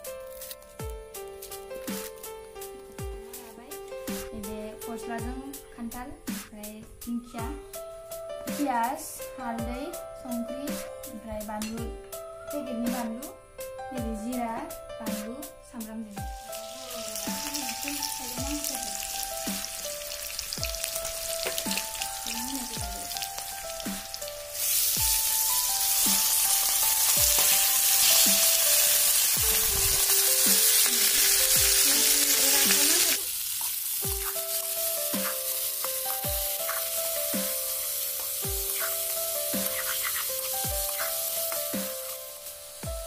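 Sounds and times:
background music: 0:00.0 - 0:43.0
onions sizzling in oil: 0:15.8 - 0:43.0.

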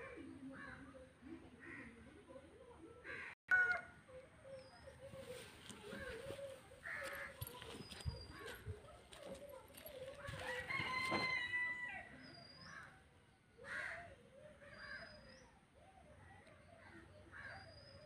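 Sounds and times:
rooster crowing: 0:10.4 - 0:12.1.

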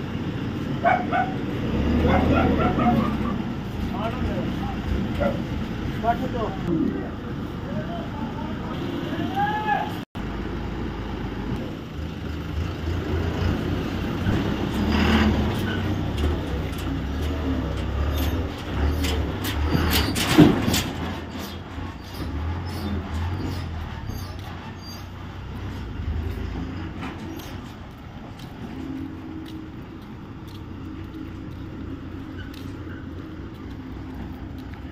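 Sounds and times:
truck diesel engine driving off: 0:00.0 - 0:09.2, 0:10.2 - 0:34.9.

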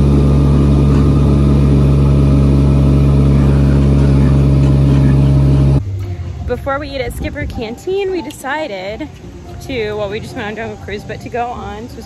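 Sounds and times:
boat engine droning: 0:00.0 - 0:08.0.

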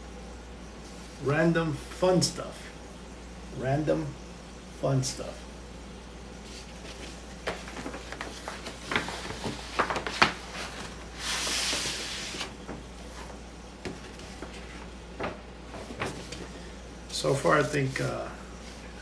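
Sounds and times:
paper crackles: 0:06.5 - 0:16.5
paper envelope rustling: 0:06.5 - 0:16.6.

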